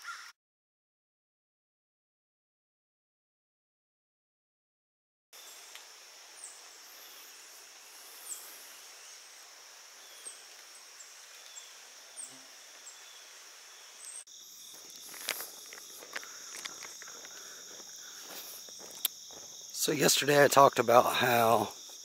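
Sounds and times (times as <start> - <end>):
insect chorus trilling: 5.4 - 22.0.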